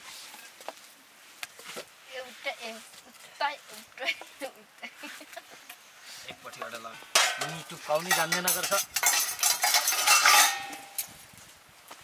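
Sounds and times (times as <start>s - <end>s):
metal dishes clattering: 6.4s - 11.0s.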